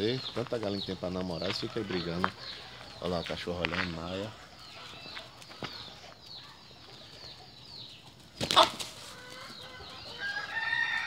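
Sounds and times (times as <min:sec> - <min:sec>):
roosters fighting: 0:00.0 - 0:11.0
wing flapping and scuffling: 0:04.8 - 0:11.0.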